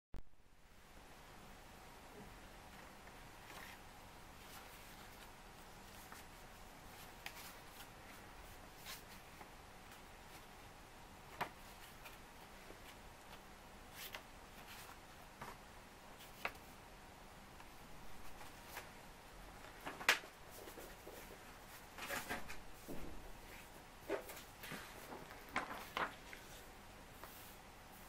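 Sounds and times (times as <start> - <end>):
room hiss: 0.2 - 28.0
paper crinkling and tapping: 6.9 - 8.2, 19.6 - 21.4, 24.1 - 26.6.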